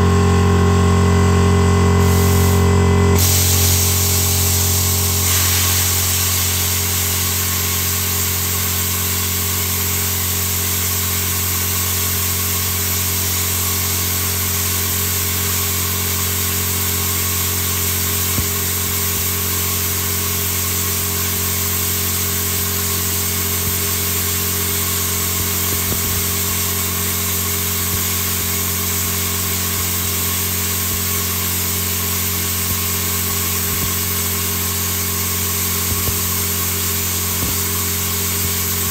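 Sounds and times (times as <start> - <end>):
plasma cutter hissing: 2.0 - 38.9.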